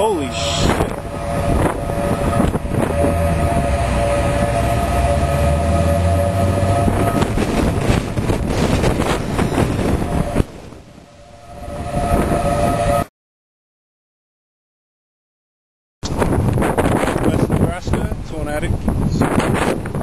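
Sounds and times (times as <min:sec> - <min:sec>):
warning siren steady tone: 0:00.0 - 0:13.1
wind noise on microphone: 0:00.0 - 0:13.1, 0:16.0 - 0:20.0.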